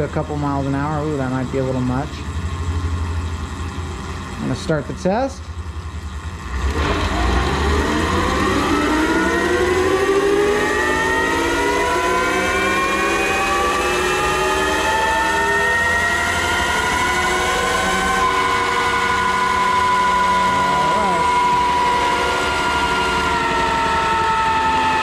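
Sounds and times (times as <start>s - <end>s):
electric motor whine: 6.7s - 25.0s.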